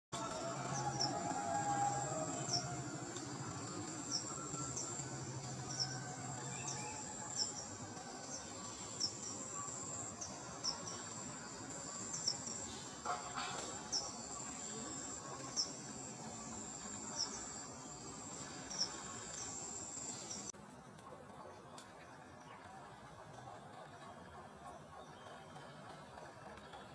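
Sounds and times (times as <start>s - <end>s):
high-pitched insect drone: 0.2s - 13.0s.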